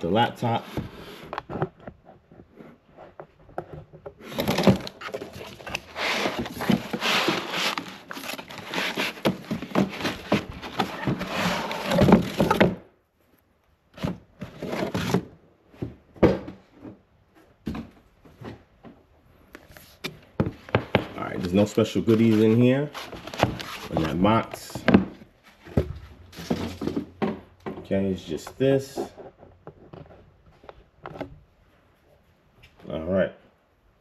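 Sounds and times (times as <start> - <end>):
cardboard and foam scraping rustling: 0.4 - 12.8, 13.9 - 15.4, 19.7 - 27.1.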